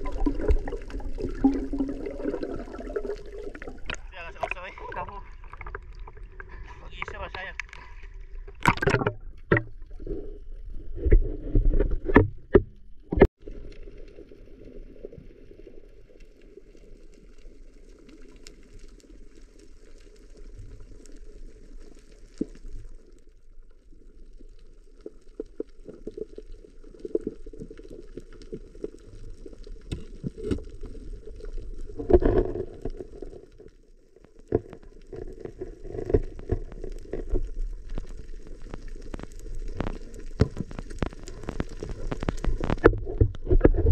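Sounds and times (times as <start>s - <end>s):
underwater rush of water: 0.0s - 43.9s
clicks and knocks: 8.6s - 9.7s.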